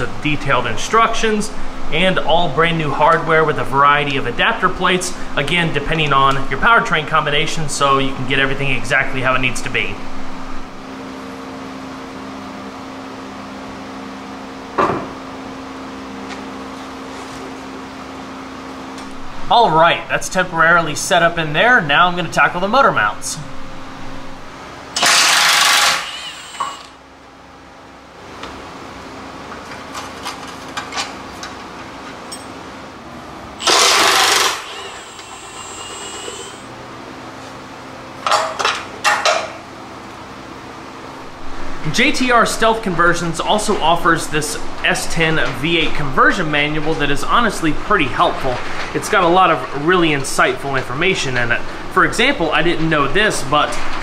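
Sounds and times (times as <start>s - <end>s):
steady low hum: 0.0s - 54.0s
air wrench bursts: 25.0s - 27.0s, 33.6s - 36.7s
thin high whine: 33.6s - 36.8s.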